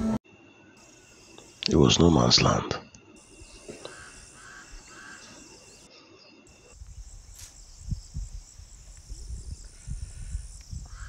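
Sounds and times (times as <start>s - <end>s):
insects chirring: 0.3s - 11.0s
bird calling: 3.2s - 5.9s
wind rumble on microphone: 6.8s - 11.0s.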